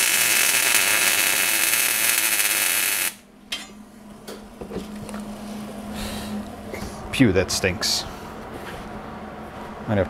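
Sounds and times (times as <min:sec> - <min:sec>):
welder arc crackling: 0:00.0 - 0:03.2.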